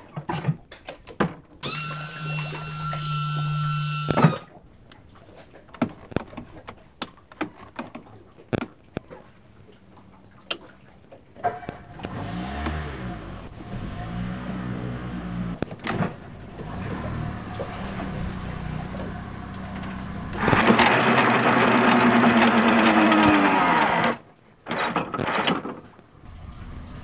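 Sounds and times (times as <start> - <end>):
electric motor whining: 1.6 - 4.5, 19.6 - 24.2
motor stopping thunk: 1.6 - 4.5, 12.0 - 24.2
outboard engine idling: 1.6 - 8.4, 9.1 - 24.6.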